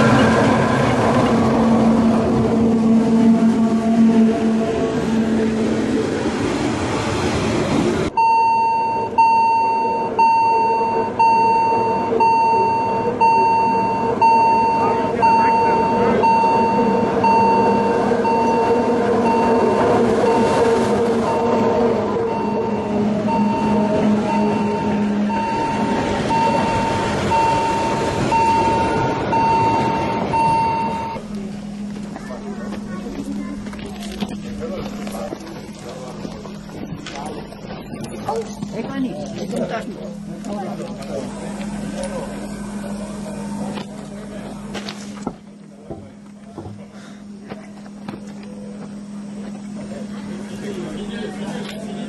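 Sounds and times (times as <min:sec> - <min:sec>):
level crossing warning tone: 0:00.0 - 0:06.6, 0:08.1 - 0:52.0
train coaches rolling on rails: 0:00.0 - 0:52.0
electronic warning beeps: 0:08.2 - 0:31.2.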